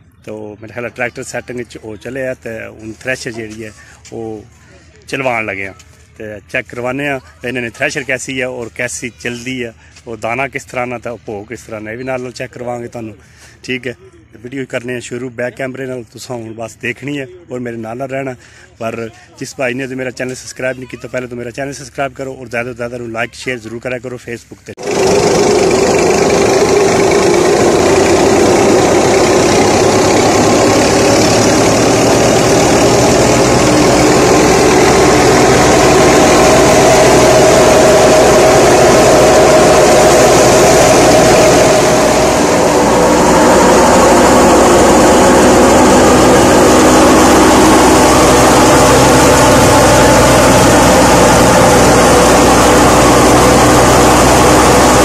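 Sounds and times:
thresher machine noise: 24.8 - 55.0
tractor engine running under load: 24.8 - 55.0.

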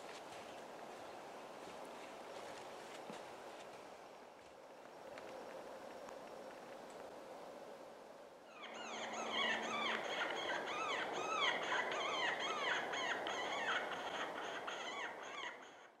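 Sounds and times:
coyote yips and howls: 8.5 - 16.0.

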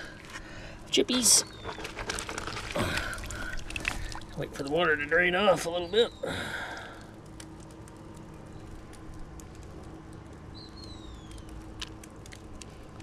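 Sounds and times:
water dripping into bucket: 1.1 - 4.9.

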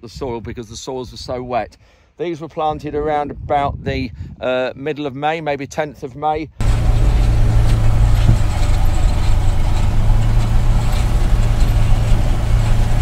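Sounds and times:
tractor engine running: 6.6 - 13.0.

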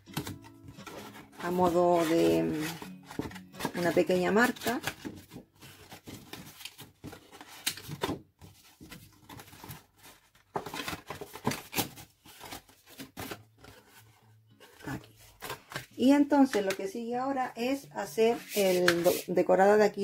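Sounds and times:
card rustling and crackling: 0.0 - 16.0.

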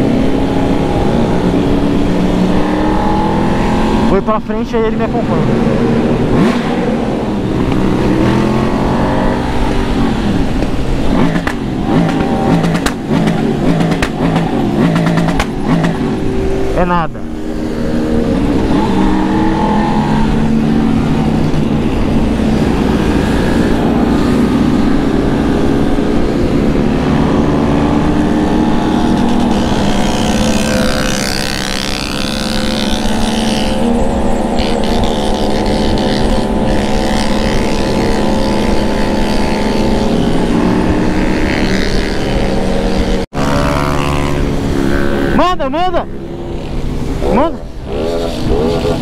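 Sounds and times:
motorcycle engine accelerating: 0.0 - 49.0
wind rushing over microphone: 0.0 - 49.0.

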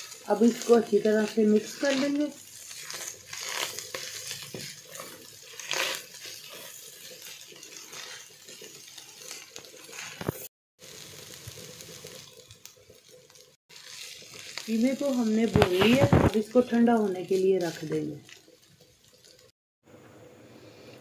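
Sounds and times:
spatula scraping a pan: 0.0 - 10.5, 11.4 - 16.6
meat sizzling in a wok: 0.0 - 19.6.

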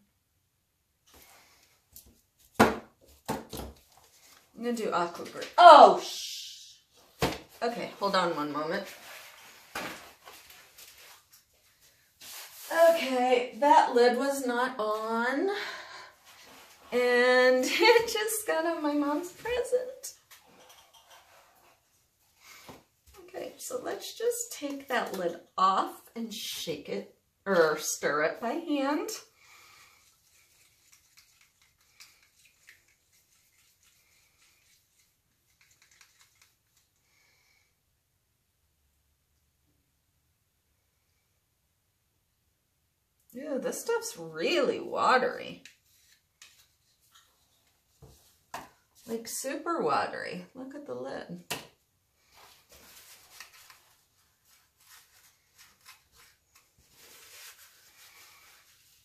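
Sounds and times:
stick stirring paint: 30.0 - 37.0.

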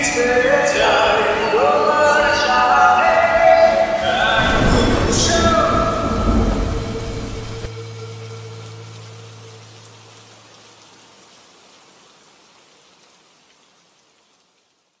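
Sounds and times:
rain hiss: 0.0 - 15.0
low held musical note: 4.0 - 10.6.

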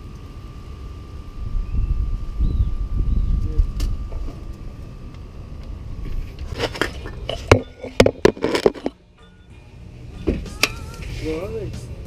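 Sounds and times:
wind rumble on microphone: 1.3 - 7.0.

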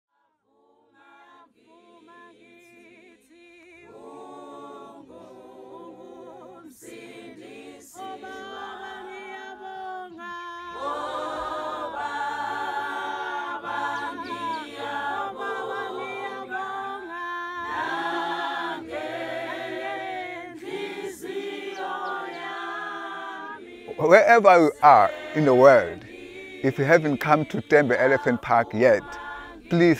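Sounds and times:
unaccompanied choir singing: 0.3 - 29.9.

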